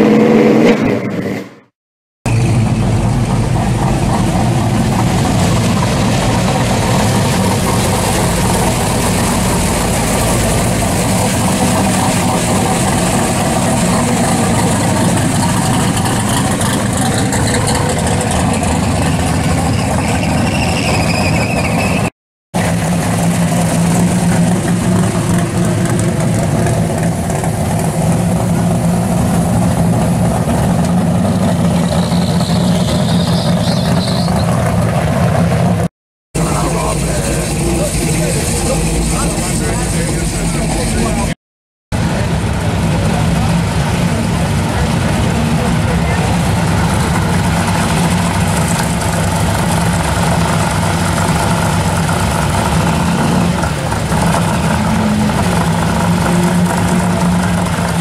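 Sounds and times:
car exhausts rumbling: 0:02.3 - 0:58.0.

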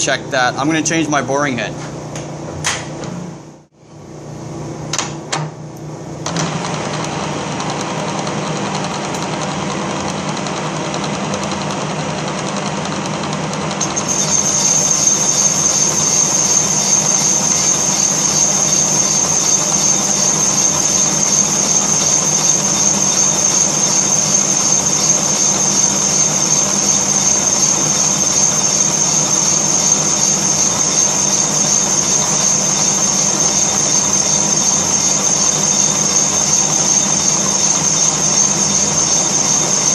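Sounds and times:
boring machine running: 0:06.1 - 0:39.9
high steady whine: 0:13.8 - 0:39.9.

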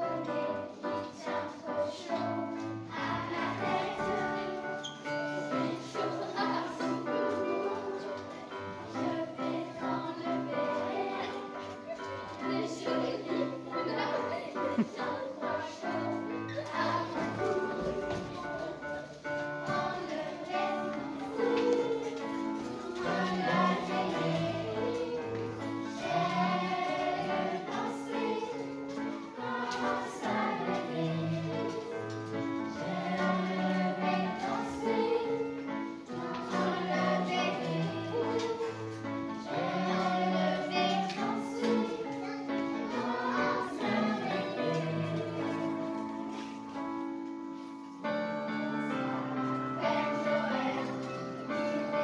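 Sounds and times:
children's choir singing: 0:00.0 - 0:52.0
instrumental accompaniment: 0:00.1 - 0:52.0.

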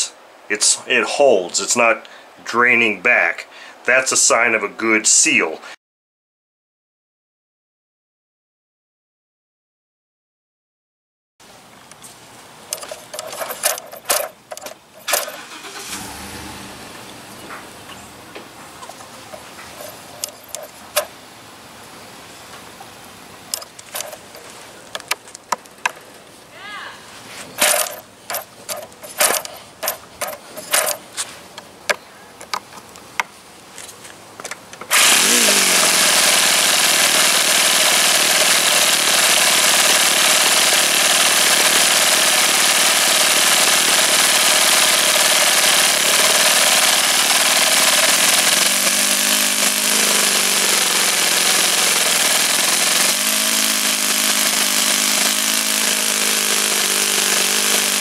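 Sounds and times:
model engine running: 0:12.7 - 0:16.6, 0:19.2 - 0:21.1, 0:23.5 - 0:24.4, 0:27.6 - 0:31.0, 0:34.9 - 0:58.0
model engine starting knocks: 0:27.6 - 0:31.0, 0:36.0 - 0:58.0.

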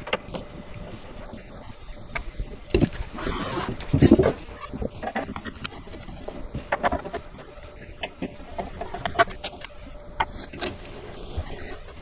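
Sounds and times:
wooden parts clicking and knocking: 0:02.0 - 0:03.1.

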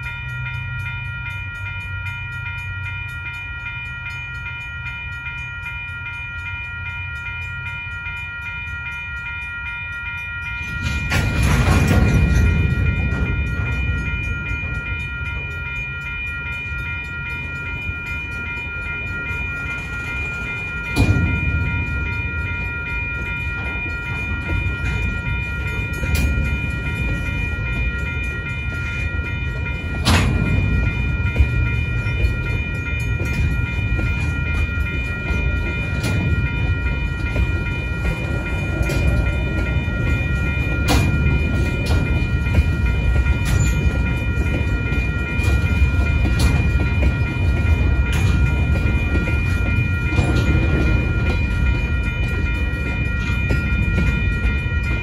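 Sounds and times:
electronic crossing bell ringing: 0:00.0 - 0:55.0
freight train wheels rumbling: 0:00.0 - 0:55.0
sharp metal clanks: 0:29.7 - 0:34.8.

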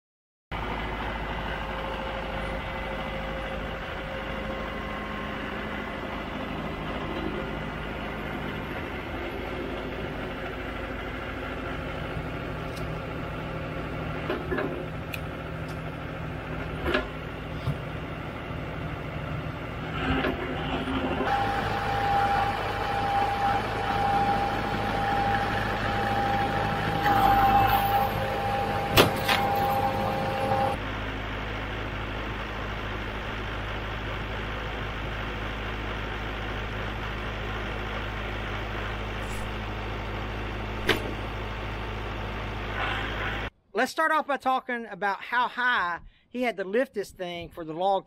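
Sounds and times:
diesel tractor engine running: 0:00.5 - 0:43.6
hydraulic whine: 0:00.6 - 0:32.3.

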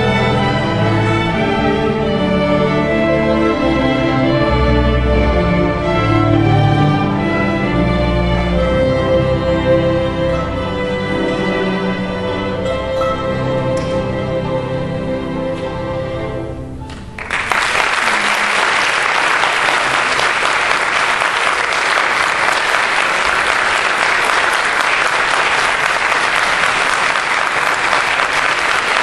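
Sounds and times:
audience applause: 0:17.2 - 0:29.0.

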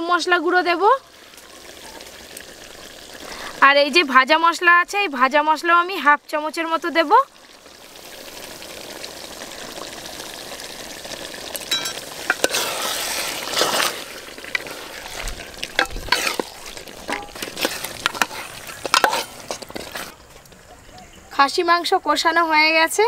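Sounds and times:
curry sizzling in a metal pot: 0:00.0 - 0:20.4
metal ladle scraping a pot: 0:11.7 - 0:20.4.

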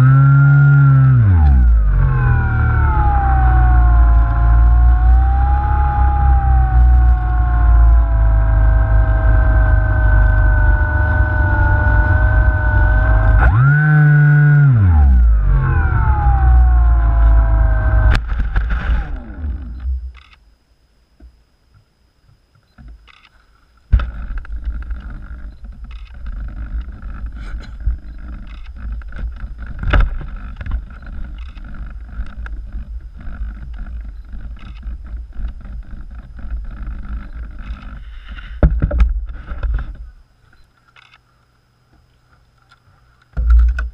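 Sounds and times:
electric motor whining: 0:00.0 - 0:20.4.

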